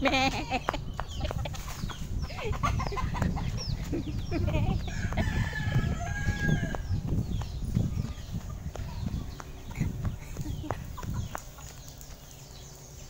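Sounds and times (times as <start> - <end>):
wind on microphone: 0.1 - 11.8
rooster crowing: 4.9 - 6.9.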